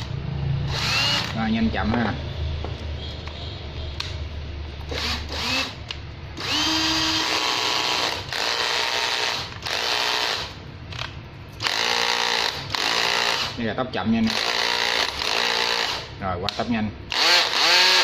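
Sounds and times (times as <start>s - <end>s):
cordless drill motor whining: 0.7s - 1.4s, 4.9s - 5.8s, 6.4s - 10.6s, 11.6s - 13.6s, 14.3s - 16.0s, 17.1s - 18.0s.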